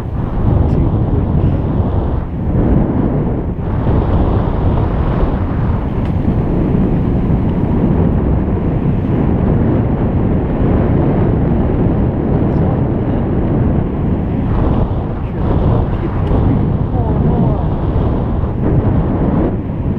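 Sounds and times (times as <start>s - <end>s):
wind buffeting microphone: 0.0s - 19.9s.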